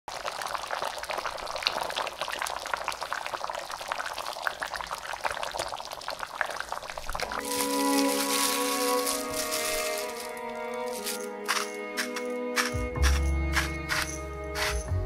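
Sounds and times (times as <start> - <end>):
stew bubbling and popping: 0.1 - 7.5.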